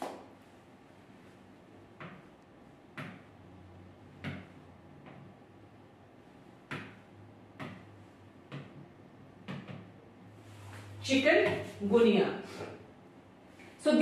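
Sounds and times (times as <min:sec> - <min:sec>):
sharp knocks: 0:06.6 - 0:07.0.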